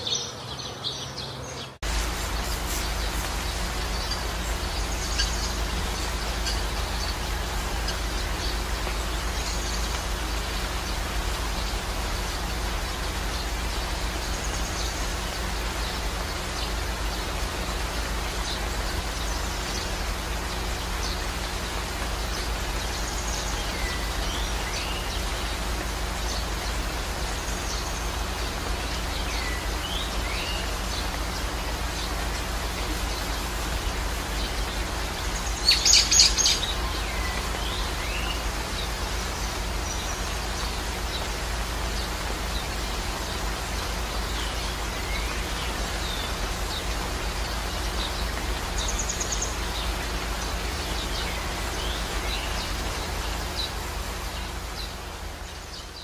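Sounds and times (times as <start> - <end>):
bird chirps: 0.0 - 12.4, 18.4 - 41.3
high bird calls: 0.0 - 56.0
steady rushing hiss: 0.0 - 56.0.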